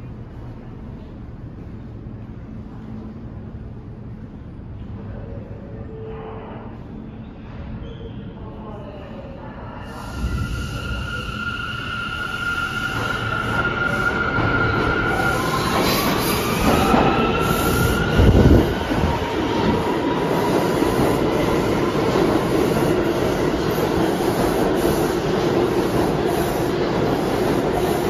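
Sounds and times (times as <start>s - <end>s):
subway cars rumbling and rattling: 0.0s - 28.0s
train wheels squealing: 9.9s - 22.8s.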